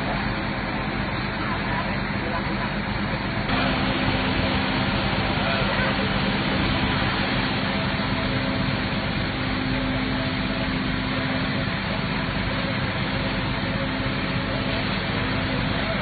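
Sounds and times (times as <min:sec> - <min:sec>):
truck engine running: 0:00.0 - 0:16.0
high-pressure water jet hissing: 0:03.5 - 0:16.0.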